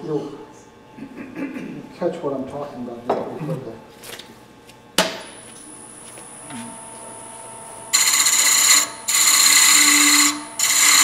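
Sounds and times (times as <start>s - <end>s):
wood lathe whining: 7.9s - 11.0s.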